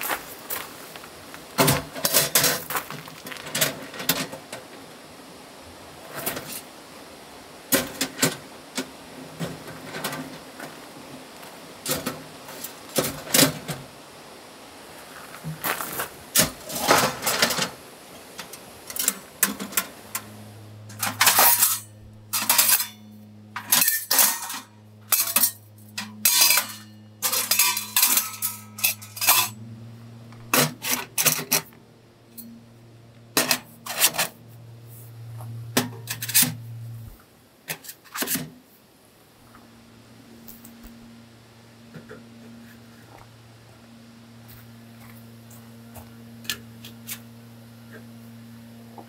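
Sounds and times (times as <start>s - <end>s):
low steady hum: 0.0s - 49.0s
metallic clanks and clinks: 20.9s - 29.6s.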